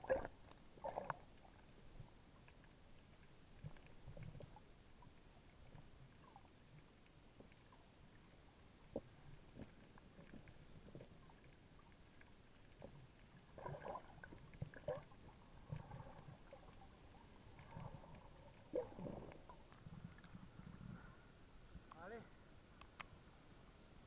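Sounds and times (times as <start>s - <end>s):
underwater gurgling and sloshing: 0.0s - 24.0s
bubbly sounds: 12.8s - 16.9s, 17.5s - 20.4s.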